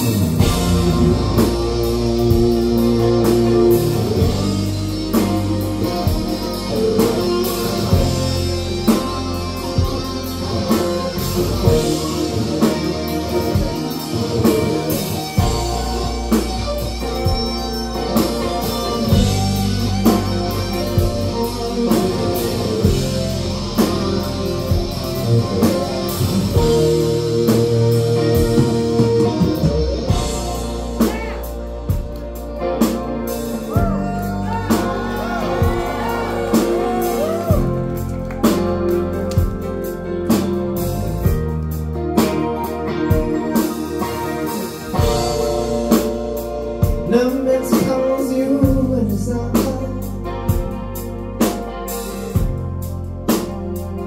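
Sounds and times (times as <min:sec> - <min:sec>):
drum kit beat: 0:00.0 - 0:54.0
electric guitars sustained notes: 0:00.0 - 0:54.0.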